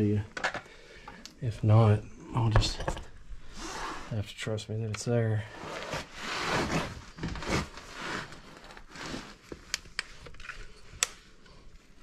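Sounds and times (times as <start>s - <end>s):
rustling and scraping on concrete: 5.5s - 10.9s.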